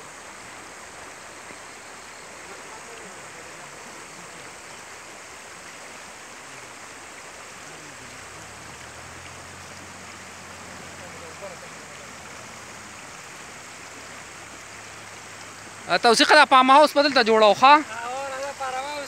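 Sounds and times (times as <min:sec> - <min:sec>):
stream rushing over stones: 0:00.0 - 0:19.0.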